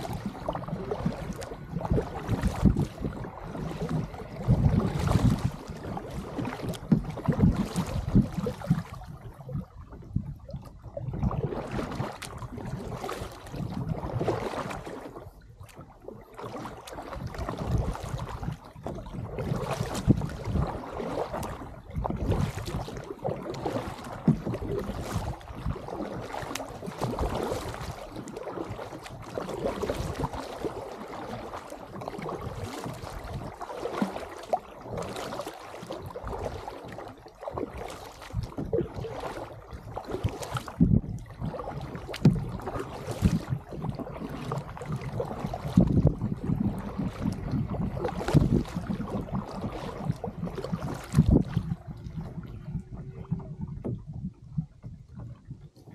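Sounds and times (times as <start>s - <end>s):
paddle splashing into water: 0.0s - 54.2s
water washing past hull: 0.0s - 55.9s
wind rumble on microphone: 0.0s - 55.9s.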